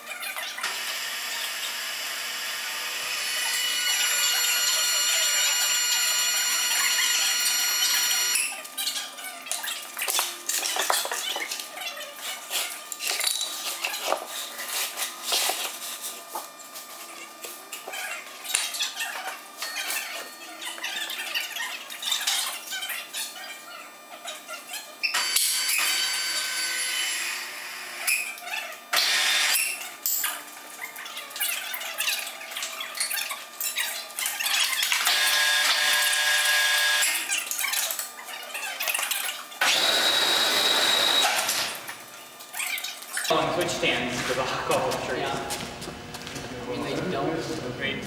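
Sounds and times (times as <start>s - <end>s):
machine whining: 0.6s - 8.6s, 25.1s - 29.8s, 34.5s - 37.8s, 39.1s - 42.1s.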